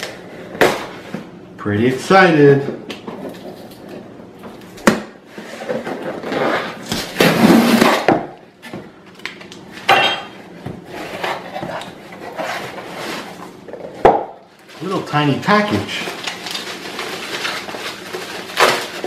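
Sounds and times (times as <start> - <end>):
cardboard scraping and rustling: 5.3 - 8.1, 10.8 - 14.0, 14.7 - 19.0
tape tearing: 6.0 - 8.1, 14.8 - 19.0
blade slitting packing tape: 16.2 - 19.0.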